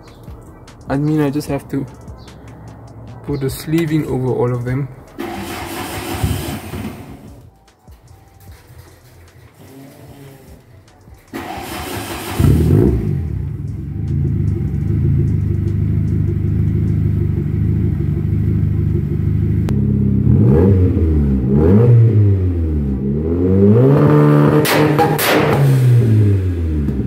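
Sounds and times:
car engine idling: 0:00.0 - 0:07.7, 0:08.5 - 0:20.5
car engine revving: 0:02.3 - 0:07.5, 0:09.5 - 0:27.0
car engine starter cranking: 0:04.6 - 0:07.5, 0:10.6 - 0:13.4.

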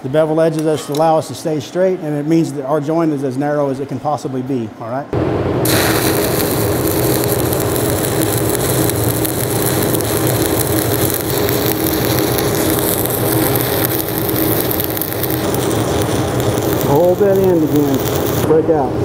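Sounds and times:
welding arc crackling and sizzling: 0:05.6 - 0:18.6.

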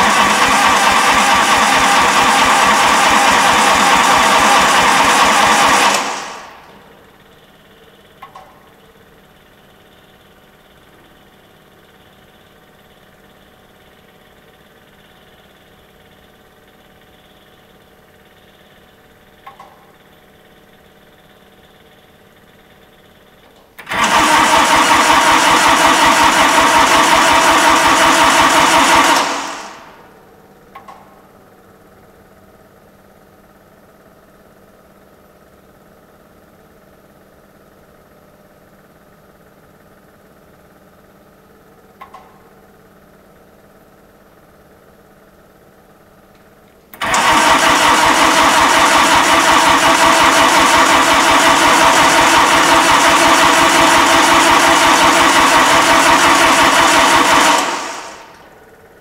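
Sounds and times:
diesel engine starter cranking: 0:00.0 - 0:07.0, 0:23.8 - 0:30.0, 0:46.9 - 0:58.6.

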